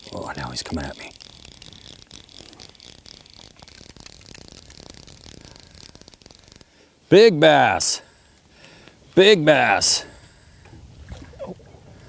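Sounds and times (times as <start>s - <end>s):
fishing reel ratcheting clicks: 0.0s - 6.8s.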